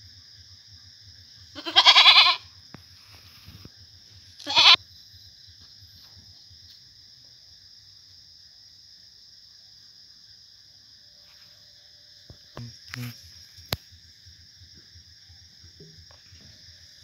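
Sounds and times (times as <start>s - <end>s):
goat bleating: 1.5s - 2.4s, 4.4s - 4.8s.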